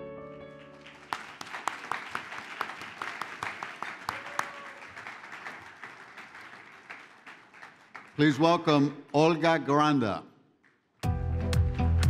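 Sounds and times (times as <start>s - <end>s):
audience applauding: 0.5s - 8.9s.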